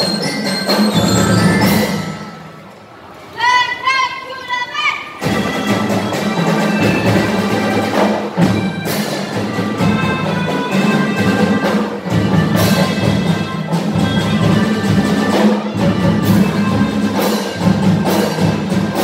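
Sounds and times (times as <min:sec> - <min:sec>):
drums: 0:00.0 - 0:03.1, 0:05.1 - 0:19.0
horn chords: 0:05.2 - 0:19.0.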